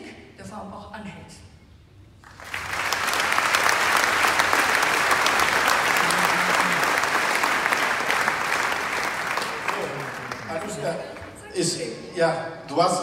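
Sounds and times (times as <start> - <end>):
audience applauding: 2.2 - 12.1.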